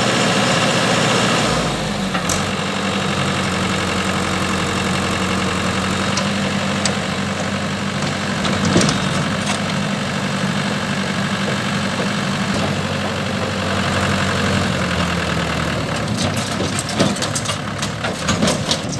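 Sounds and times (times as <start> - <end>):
tractor diesel engine idling: 0.0 - 18.9
trolley dumping soil: 5.4 - 18.9
knocks and clatters: 6.1 - 9.8, 15.8 - 18.9.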